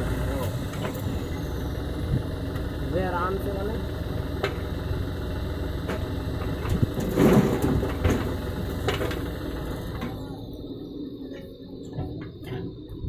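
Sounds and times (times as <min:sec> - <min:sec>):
diesel engines running: 0:00.0 - 0:13.0.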